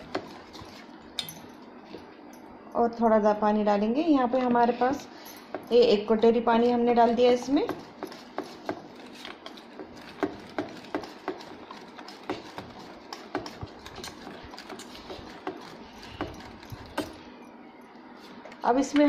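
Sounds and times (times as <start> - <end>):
whisk stirring wet batter: 0.0 - 1.0, 6.9 - 17.3
whisk clicking against steel bowl: 9.4 - 17.1.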